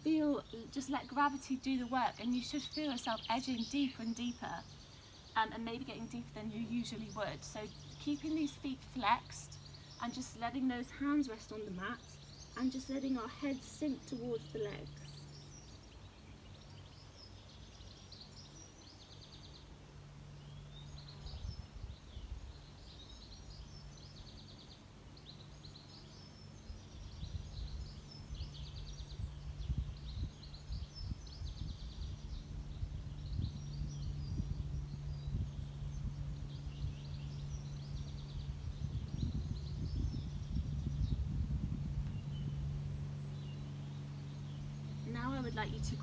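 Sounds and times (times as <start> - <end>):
low steady hum: 0.0 - 46.0
songbirds singing: 0.0 - 46.0
low rumble: 26.8 - 46.0.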